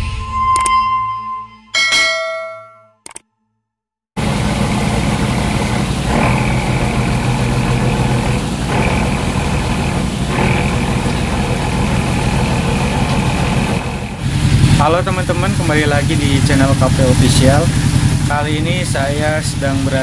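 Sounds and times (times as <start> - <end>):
high-pitched whine: 0.0 - 2.2
boat engine humming: 4.2 - 20.0.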